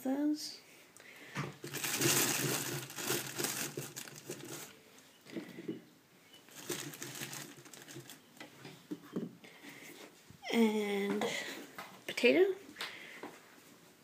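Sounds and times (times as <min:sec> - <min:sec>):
plastic kitchenware rattling: 0:01.6 - 0:04.7, 0:06.5 - 0:08.2
plastic kitchenware crinkling rustle: 0:01.6 - 0:04.8, 0:06.4 - 0:08.7.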